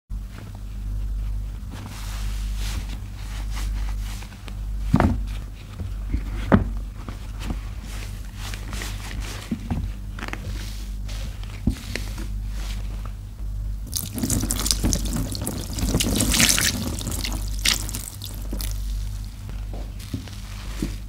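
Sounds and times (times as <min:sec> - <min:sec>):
water splashing into plastic tub: 0:13.9 - 0:19.2.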